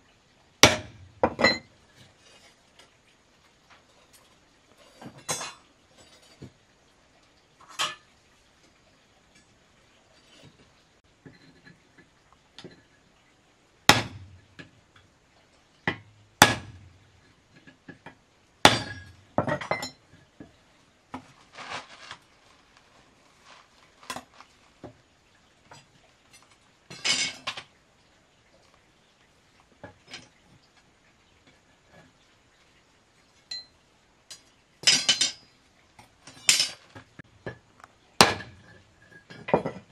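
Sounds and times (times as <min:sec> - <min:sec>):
steel rods clinking and rattling: 0:03.8 - 0:06.6, 0:07.6 - 0:08.2, 0:18.7 - 0:20.5, 0:25.6 - 0:27.8, 0:33.5 - 0:39.9
hammer striking steel rod: 0:16.4 - 0:16.7.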